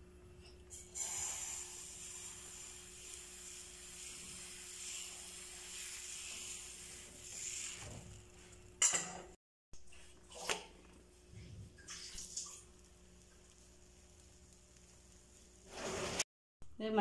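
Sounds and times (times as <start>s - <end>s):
batter sizzling on a pan: 0.7s - 9.0s, 11.2s - 16.3s.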